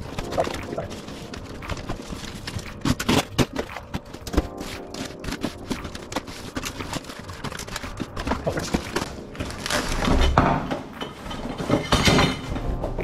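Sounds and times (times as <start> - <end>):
cardboard tearing and scraping: 0.0 - 10.4.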